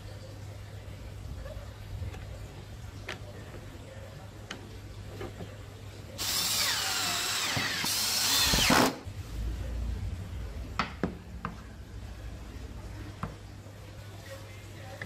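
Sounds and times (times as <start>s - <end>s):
power tool cutting wood: 6.2s - 9.0s.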